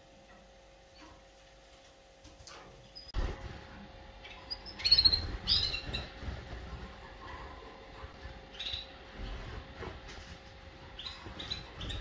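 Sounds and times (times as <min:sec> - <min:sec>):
canaries chirping: 0:04.2 - 0:12.0.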